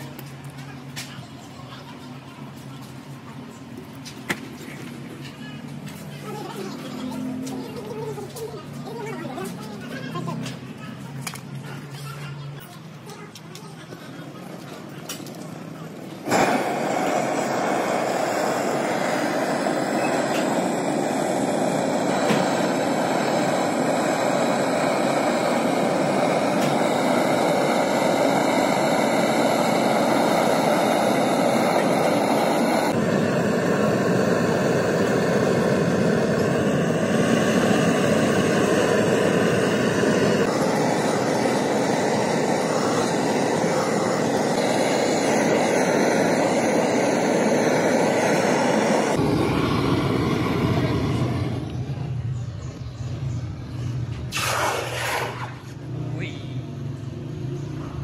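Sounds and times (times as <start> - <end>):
machine whirring: 15.1 - 52.1.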